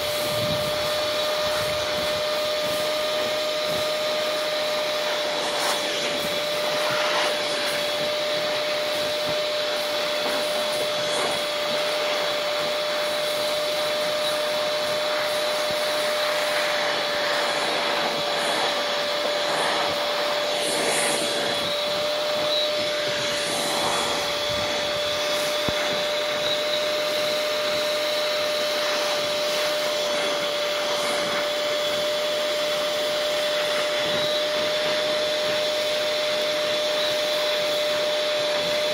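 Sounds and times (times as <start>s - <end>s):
shop vac whining: 0.0s - 38.9s.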